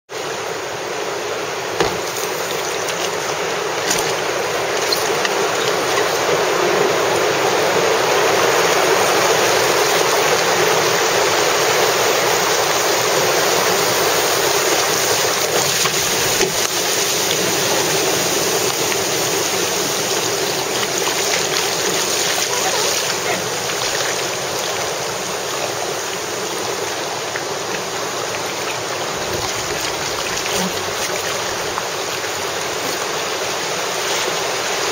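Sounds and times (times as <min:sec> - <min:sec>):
river water rushing through rapids: 0:00.1 - 0:34.9
sharp knocks: 0:01.8 - 0:02.5.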